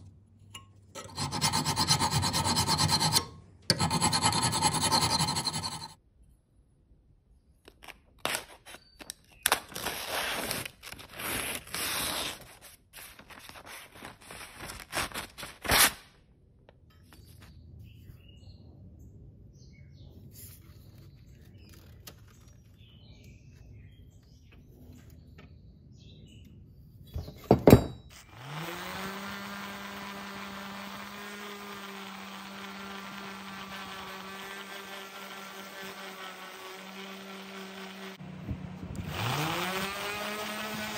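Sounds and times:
scraping on steel: 0.5 - 6.0
orbital sander humming: 1.0 - 6.0, 28.3 - 40.9.

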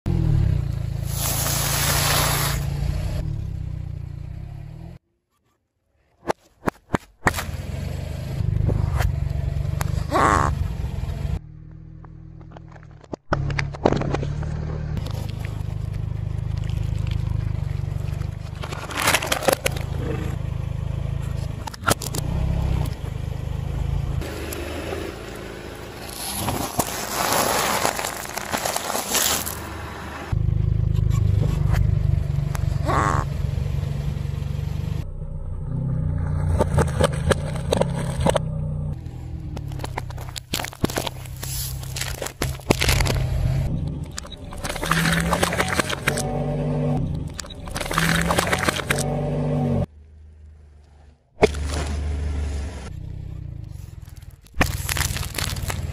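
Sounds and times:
tyre and engine rumble: 0.0 - 5.0, 6.7 - 55.9
tyre crushing objects: 26.1 - 29.7, 39.6 - 43.5, 54.5 - 55.9
sharp cracks: 54.1 - 55.9.

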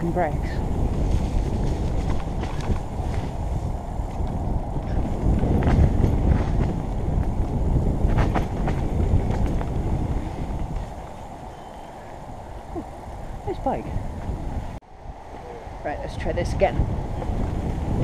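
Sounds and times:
rushing air: 0.0 - 18.0
bike tyres rumbling on dirt: 0.1 - 14.8, 16.8 - 18.0
bike knocking over bumps: 4.1 - 11.1.

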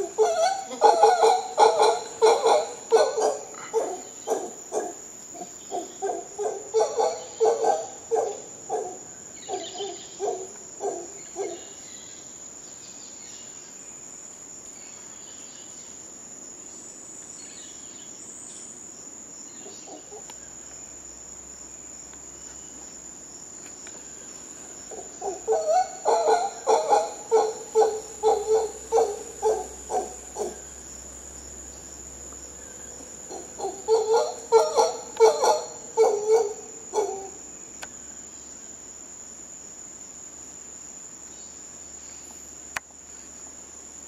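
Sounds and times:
howler monkeys grunting: 0.0 - 11.6, 24.8 - 30.9, 32.6 - 37.4
high-pitched insect drone: 23.8 - 38.6.

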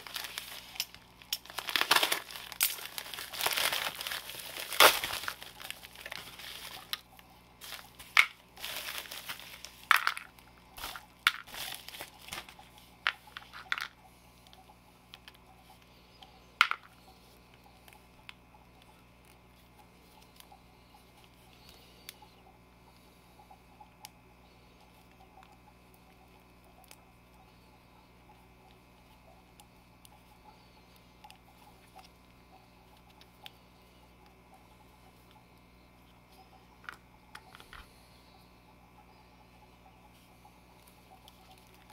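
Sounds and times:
plastic bag and bubble wrap crinkling: 0.0 - 14.0, 40.8 - 41.9.

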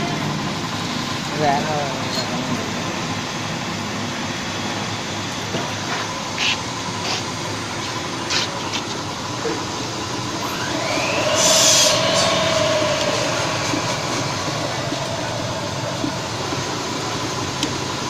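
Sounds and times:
whining tone: 10.1 - 18.0
electric grinder motor running: 10.3 - 18.0.

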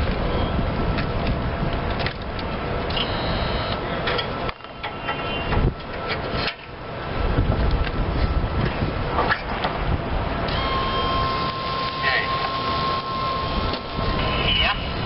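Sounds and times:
mower engine rumbling: 5.6 - 15.0.

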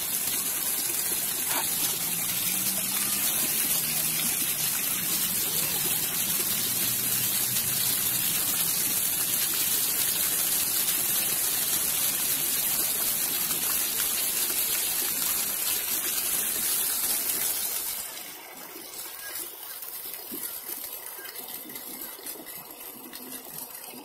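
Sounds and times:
fountain water jets splashing: 0.0 - 24.0.

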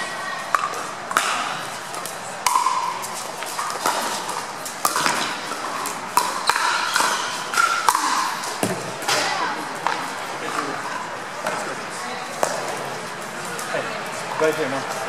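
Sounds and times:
paddles hitting plastic ball: 0.5 - 10.6.

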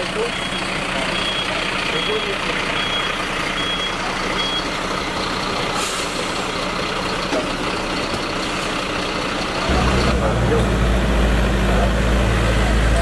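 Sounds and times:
fire truck engine running: 0.0 - 13.0
warning beeper: 0.2 - 4.8.

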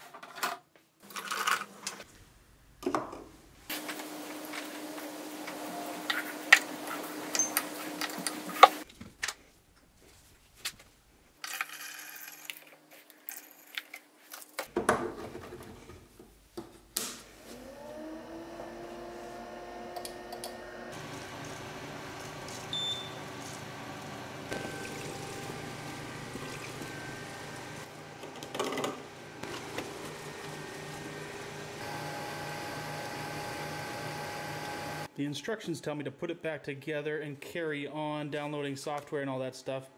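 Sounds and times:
pump and fans humming: 3.7 - 8.8, 17.4 - 35.1
water pouring into a funnel: 24.5 - 27.8.

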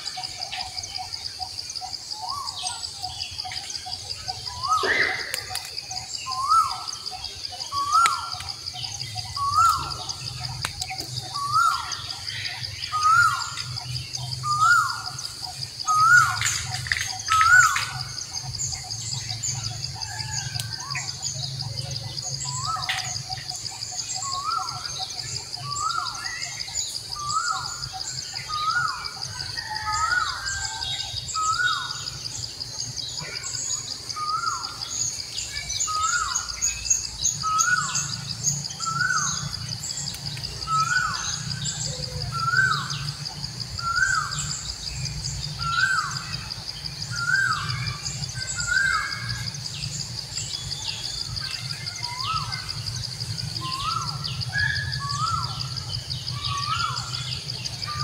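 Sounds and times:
high insect drone: 0.0 - 58.0
small bird chirps: 0.0 - 58.0
bird whistling: 4.5 - 10.6
sharp clicks: 4.8 - 5.8.

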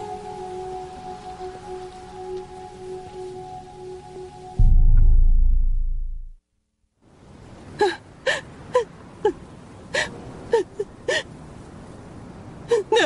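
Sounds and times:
deep low boom: 4.6 - 6.4
woman sobbing: 7.8 - 11.3, 12.6 - 13.0.

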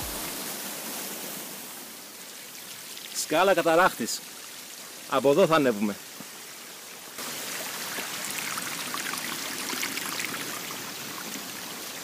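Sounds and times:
waterfall rushing: 0.0 - 2.0.

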